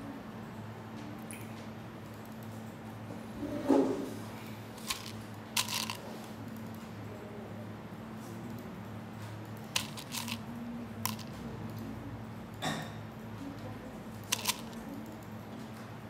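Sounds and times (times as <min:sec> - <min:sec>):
plastic buttons clicking: 0:11.0 - 0:11.3, 0:14.2 - 0:14.8.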